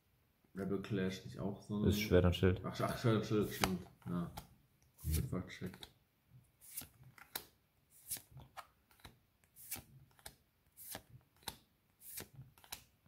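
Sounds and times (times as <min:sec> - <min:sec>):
trading cards flipped by hand: 0:03.4 - 0:06.0, 0:06.6 - 0:13.0
papery card swish: 0:05.0 - 0:05.3, 0:06.6 - 0:07.0, 0:07.9 - 0:08.3, 0:09.6 - 0:12.8.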